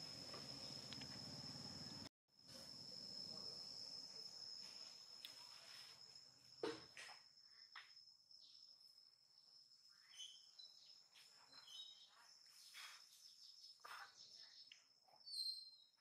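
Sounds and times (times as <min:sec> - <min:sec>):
high-pitched insect drone: 0:00.0 - 0:13.6.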